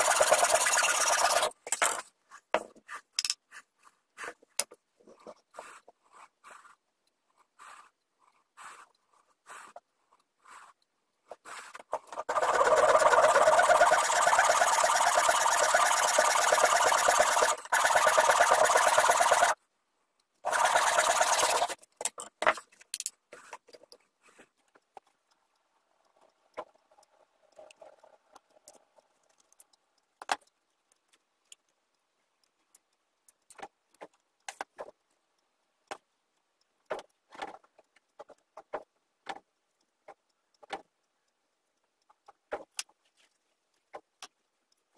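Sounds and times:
wood being sanded: 0:00.0 - 0:01.5, 0:12.2 - 0:19.6, 0:20.5 - 0:21.8
small wooden parts clicking: 0:00.0 - 0:44.9.

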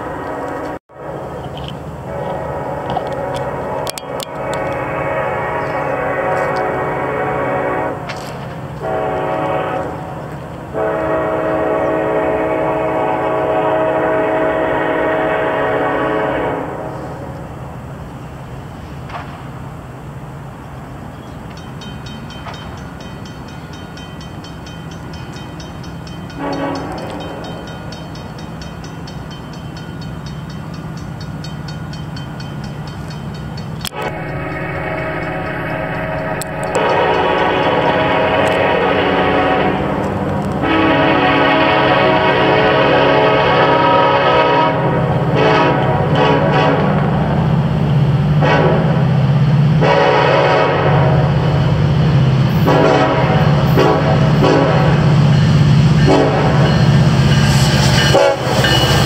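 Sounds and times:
locomotive air horn: 0:00.0 - 0:17.4, 0:26.3 - 0:27.7, 0:33.8 - 0:47.3, 0:48.3 - 0:49.2, 0:49.8 - 0:51.7, 0:52.5 - 0:59.0.

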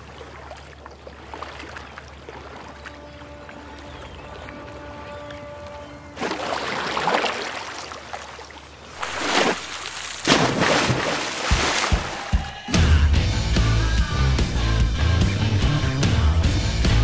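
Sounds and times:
water splashing and sloshing: 0:00.0 - 0:12.7
person falling into water: 0:06.2 - 0:12.5.

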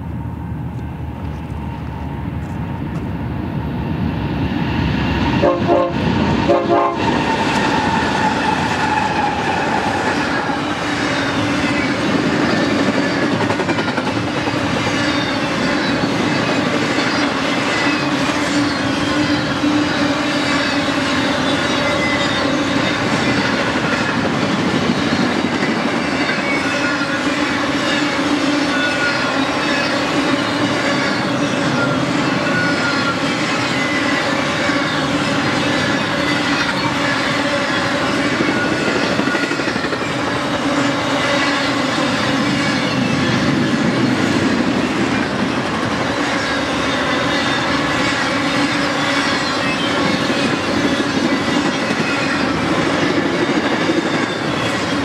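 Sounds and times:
diesel locomotive engine: 0:00.0 - 0:55.0
train horn blasts: 0:05.4 - 0:07.3
high-pitched wheel squeals: 0:14.8 - 0:55.0.

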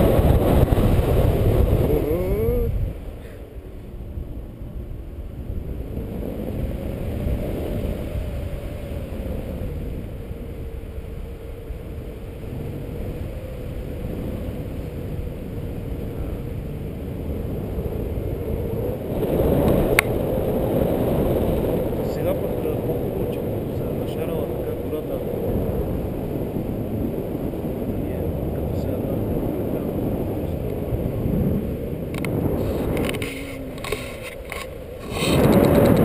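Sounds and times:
wind rushing over microphone: 0:00.0 - 0:36.0.

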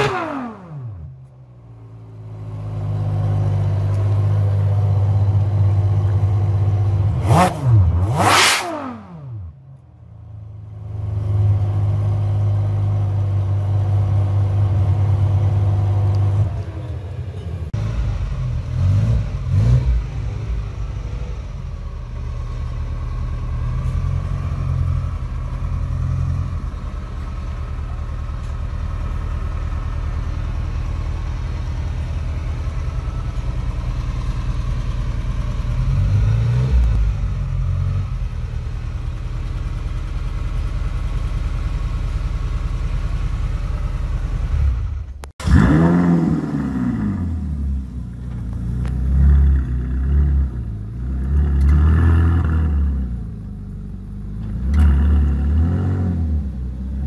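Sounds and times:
car engine revving: 0:00.0 - 0:01.1, 0:06.6 - 0:09.6, 0:17.7 - 0:41.1, 0:44.0 - 0:53.5, 0:54.4 - 0:57.0
car engine idling: 0:00.0 - 0:08.2, 0:09.1 - 0:51.7, 0:53.1 - 0:55.4.

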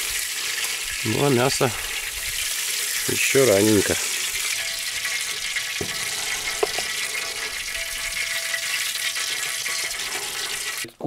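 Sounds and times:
meat sizzling: 0:00.0 - 0:10.9.

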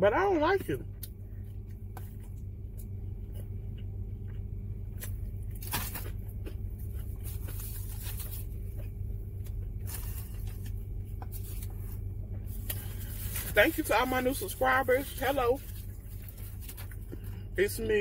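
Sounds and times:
car idling hum: 0:00.0 - 0:18.0
chewing and crunching: 0:00.6 - 0:17.8
food wrapper rustling: 0:05.0 - 0:17.3.

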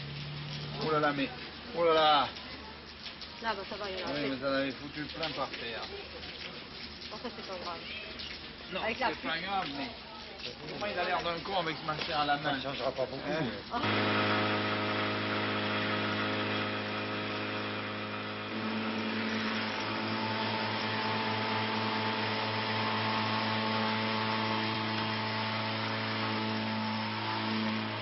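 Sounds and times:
car engine running: 0:13.8 - 0:28.0.

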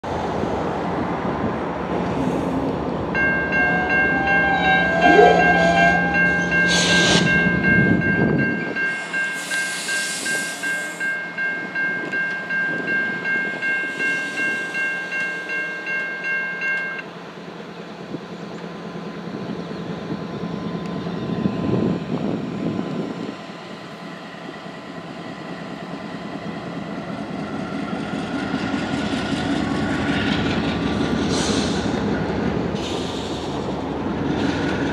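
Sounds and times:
diesel locomotive rumble: 0:00.0 - 0:34.9
electronic crossing bell ringing: 0:03.2 - 0:17.0.

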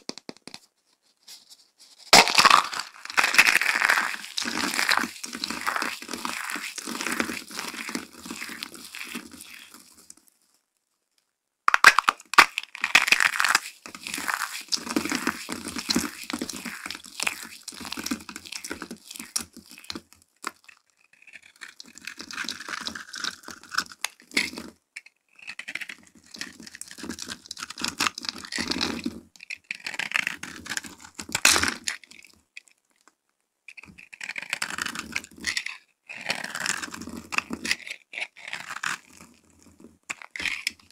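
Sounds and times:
dry soap crunching and crackling: 0:01.3 - 0:40.9
knife cutting soap bar: 0:33.7 - 0:40.9.

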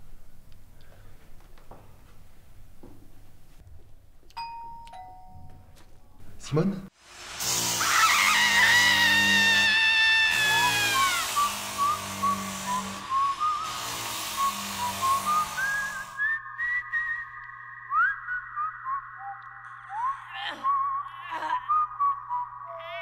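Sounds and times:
whistled melody: 0:10.9 - 0:23.0.

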